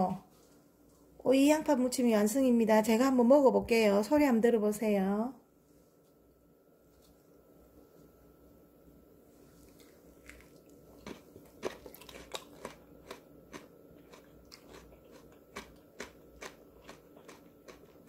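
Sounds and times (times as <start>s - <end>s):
person chewing crunchy vegetables: 9.6s - 18.0s.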